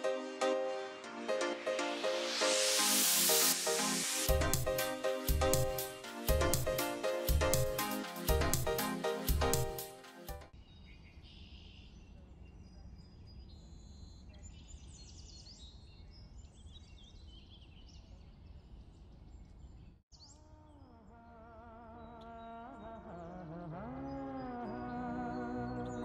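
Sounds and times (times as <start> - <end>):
background music with held notes: 0.0 - 10.5, 23.8 - 26.0
small birds chirping: 10.6 - 26.0.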